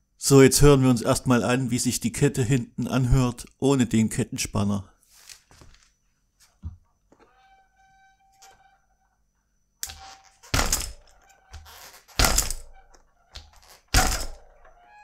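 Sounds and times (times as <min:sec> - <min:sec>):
bike chain slapping frame: 0:12.1 - 0:12.8.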